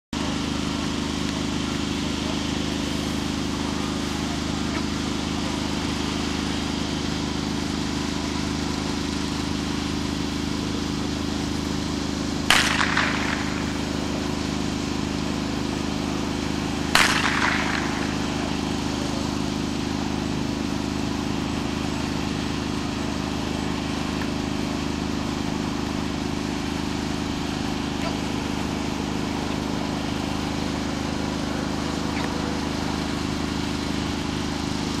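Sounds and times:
steady low hum: 0.2 - 35.0
pistol shots: 12.4 - 24.4.

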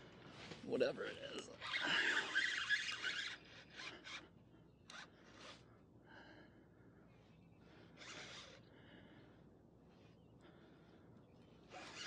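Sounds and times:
fishing reel drag buzzing: 1.4 - 5.6, 8.0 - 8.6, 11.7 - 12.0.

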